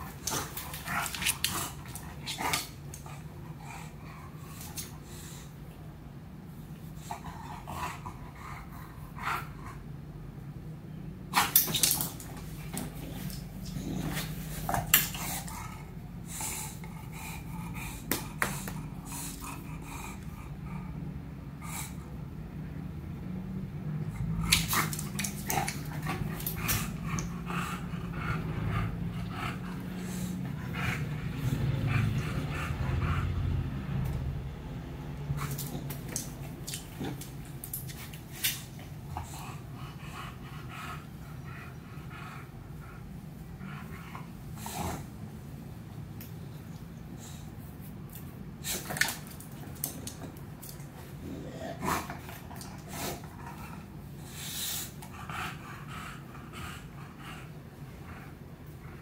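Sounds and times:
paw clicks and scrapes: 0.0s - 3.4s, 24.4s - 34.1s, 35.4s - 39.6s, 46.1s - 51.2s.

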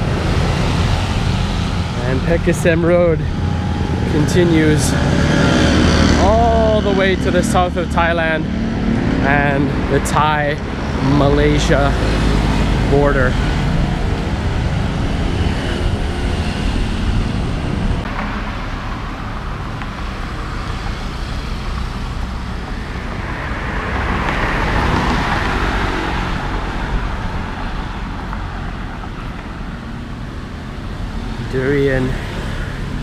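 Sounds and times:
road traffic rumble: 0.0s - 33.0s
vehicle passing close by: 0.0s - 33.0s.

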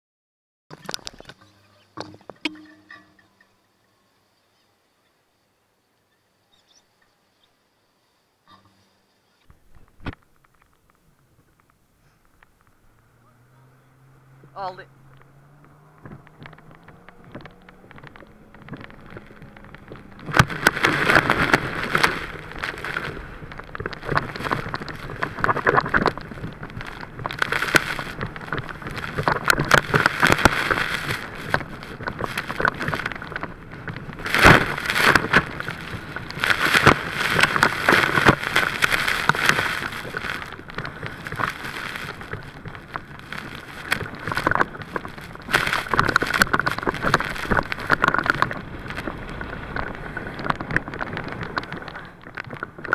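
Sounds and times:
faint engine hum: 12.0s - 20.2s
wind buffeting microphone: 14.2s - 52.9s
water spray rushing and splashing: 18.7s - 52.9s.

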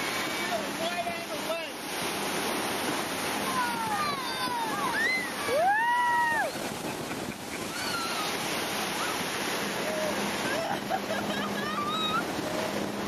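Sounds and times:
motor boat underway: 0.0s - 13.0s
wind: 0.0s - 13.0s
children calling: 3.4s - 6.6s, 7.6s - 9.2s.

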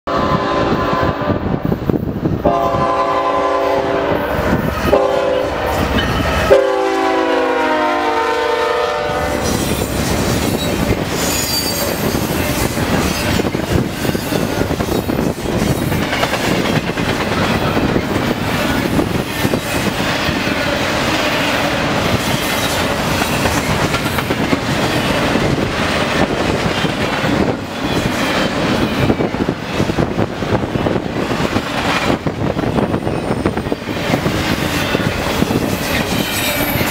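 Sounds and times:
locomotive air horn blasts: 0.1s - 1.5s, 2.4s - 9.6s
train wheels clattering and rumbling: 4.2s - 6.5s, 9.3s - 36.9s.

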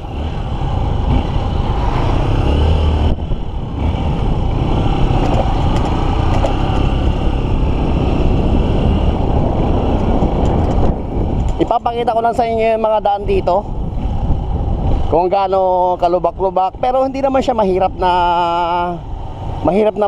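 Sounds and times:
motorcycle engine running: 0.0s - 14.8s
wind rumble on microphone: 0.0s - 20.0s.

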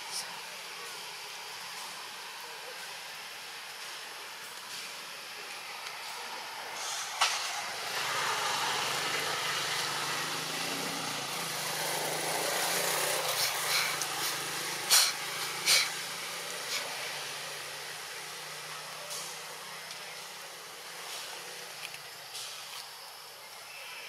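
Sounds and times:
road noise: 0.0s - 24.0s
vehicle engine passing: 6.6s - 21.6s.

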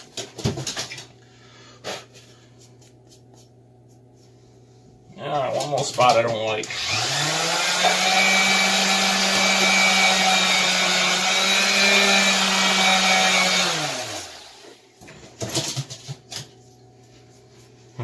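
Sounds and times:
orbital sander running: 6.7s - 14.7s
sander spinning down: 6.7s - 14.8s.

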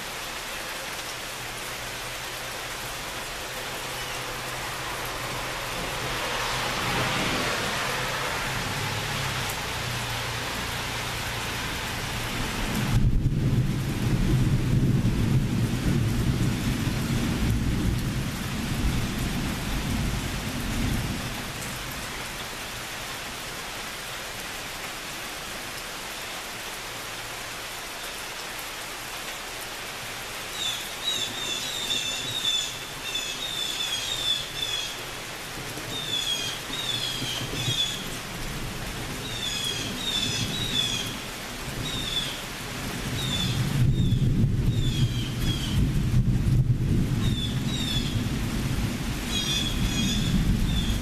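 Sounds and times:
steady rain: 0.0s - 51.0s
thunder rumble: 12.7s - 21.3s, 43.0s - 51.0s.

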